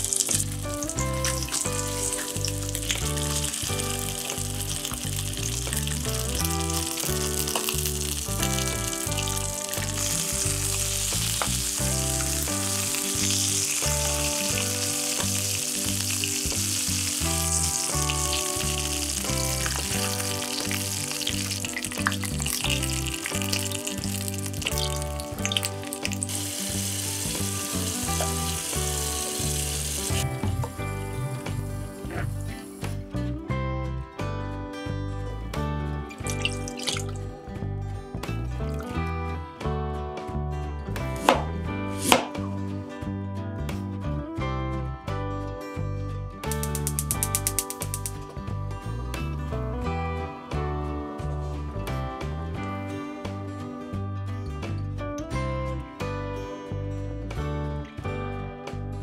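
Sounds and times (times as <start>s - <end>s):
meat sizzling in a frying pan: 0.0s - 32.9s, 36.3s - 37.2s
background music with bass line: 0.0s - 59.0s.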